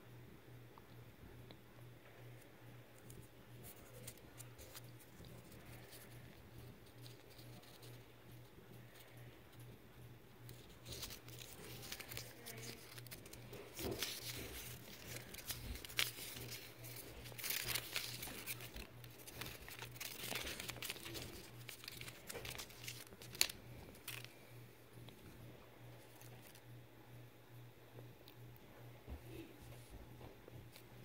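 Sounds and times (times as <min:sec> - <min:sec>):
packaging crinkling: 0:03.0 - 0:08.0, 0:10.4 - 0:24.4.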